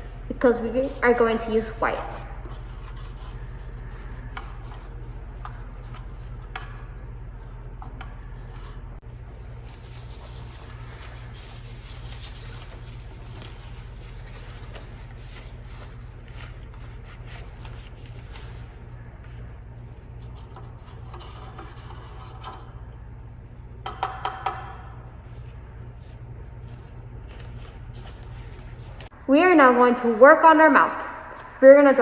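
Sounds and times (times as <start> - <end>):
steady low hum: 0.0 - 32.0
paintbrush rubbing and scraping: 0.4 - 22.7.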